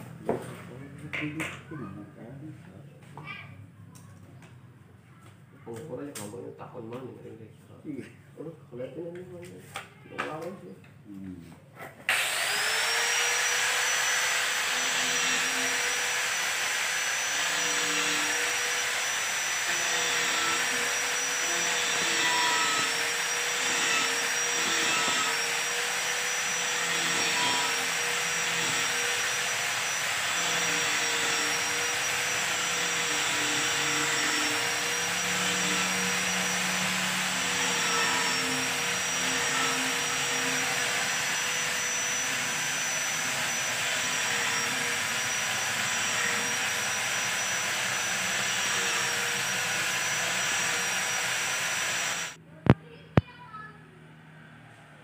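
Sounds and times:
angle grinder whining: 12.1s - 52.4s.

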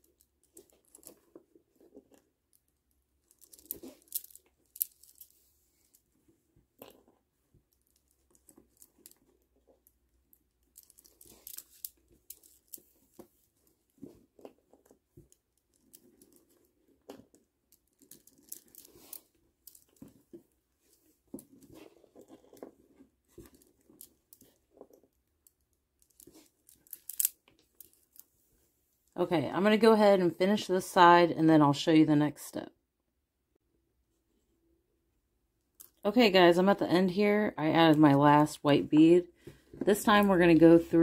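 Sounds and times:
plastic beads clicking together: 2.5s - 5.4s, 7.7s - 13.2s, 14.8s - 20.2s, 25.4s - 28.2s
string drawn through beads: 7.6s - 24.9s.

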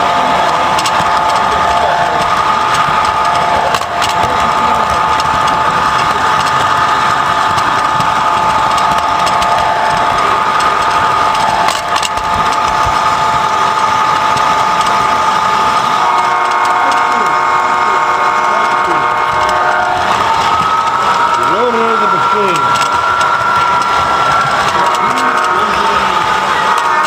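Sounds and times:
toy train motor whine: 0.0s - 27.0s
wheels rumbling on rails: 0.0s - 27.0s.

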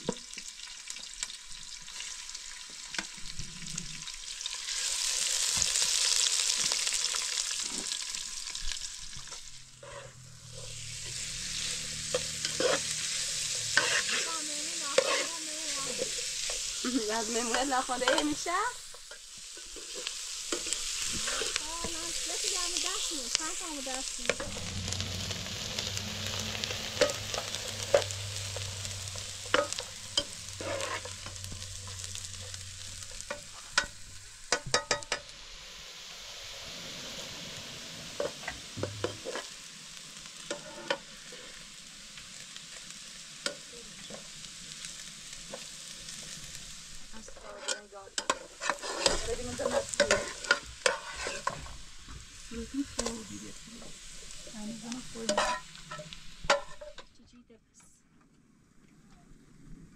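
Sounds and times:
onions sizzling in oil: 0.0s - 57.5s
metal spoon scraping pan: 9.8s - 35.2s, 40.5s - 41.1s, 47.2s - 51.8s, 55.1s - 57.1s.

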